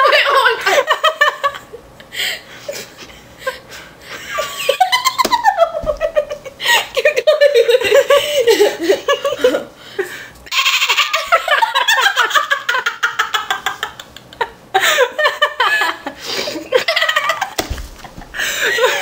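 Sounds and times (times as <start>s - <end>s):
girl giggling: 4.2s - 9.7s, 10.9s - 19.0s.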